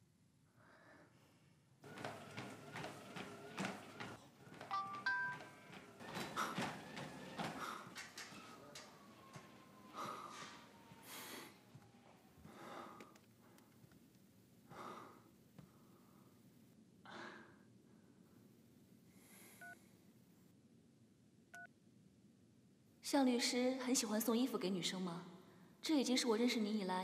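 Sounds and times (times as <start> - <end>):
man breathing hard: 6.1 - 8.2, 9.8 - 11.8, 12.4 - 13.2, 14.7 - 16.3.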